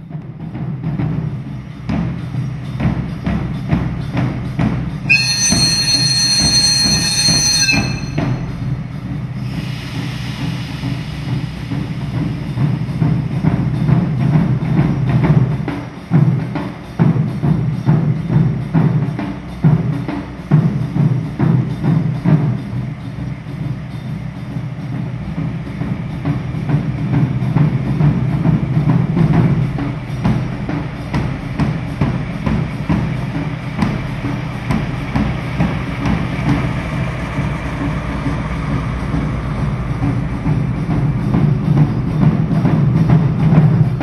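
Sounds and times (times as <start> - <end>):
diesel locomotive engine running: 0.0 - 44.0
rapid rhythmic drumming: 0.0 - 44.0
high-pitched ringing tone: 5.1 - 8.6.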